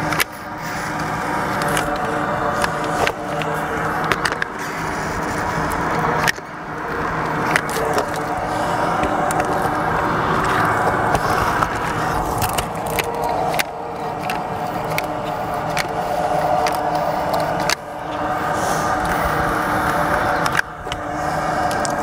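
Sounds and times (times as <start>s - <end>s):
caulk gun clicks and scrapes: 0.0s - 6.5s
steady engine-like hum: 0.0s - 22.0s.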